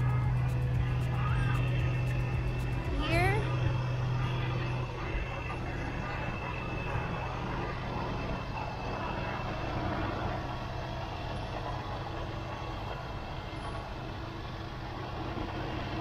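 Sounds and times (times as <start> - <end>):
diesel truck engines idling: 0.0 - 16.0.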